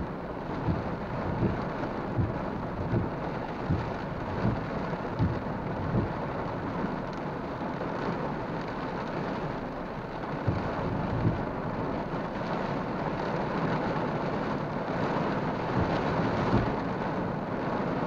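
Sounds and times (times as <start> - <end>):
rain pattering on car windshield: 0.0 - 18.0
soft low thumps: 0.3 - 6.5, 10.2 - 11.8, 15.6 - 16.8.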